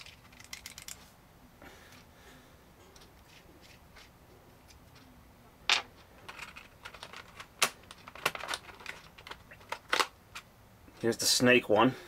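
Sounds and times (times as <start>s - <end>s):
clicks of small parts in plastic case: 0.0s - 1.0s, 5.7s - 10.5s.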